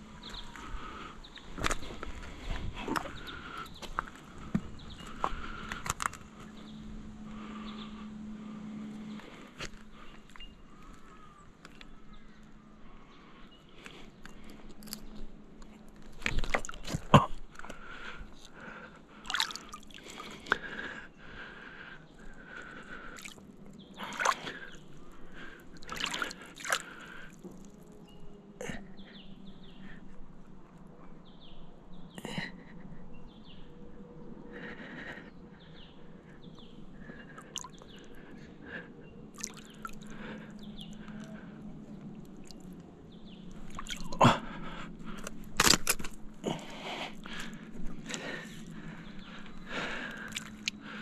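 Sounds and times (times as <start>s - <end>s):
water splashing and sloshing: 0.2s - 6.6s, 16.0s - 18.4s, 19.2s - 20.7s, 22.9s - 27.8s, 39.3s - 41.3s, 43.5s - 51.0s
oyster shells crunching and clacking: 14.2s - 15.2s, 45.2s - 46.2s, 50.1s - 50.8s.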